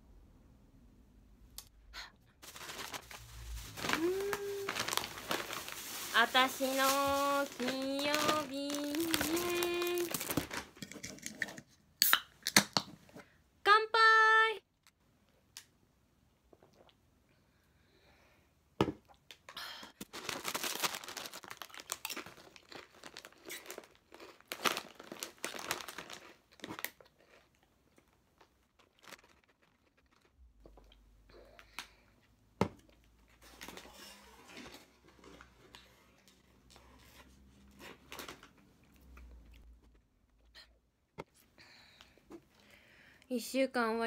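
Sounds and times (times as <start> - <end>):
snack packaging crinkling and tearing: 2.4 - 11.3, 20.0 - 30.9, 33.3 - 39.7.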